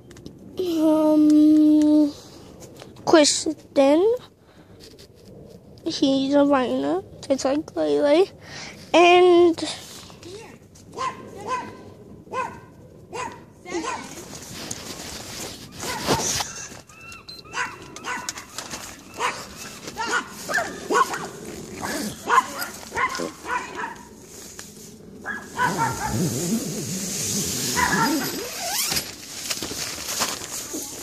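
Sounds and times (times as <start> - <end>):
dog barking: 11.0 - 14.2, 17.5 - 18.6, 19.2 - 24.1, 25.2 - 26.4, 27.8 - 28.5
tent fabric rustling: 13.8 - 31.0.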